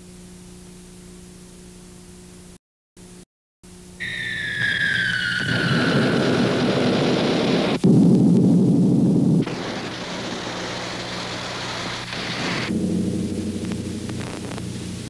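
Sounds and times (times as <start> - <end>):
steady rumbling with low hum: 5.3 - 15.0
deep explosion rumble: 5.4 - 15.0.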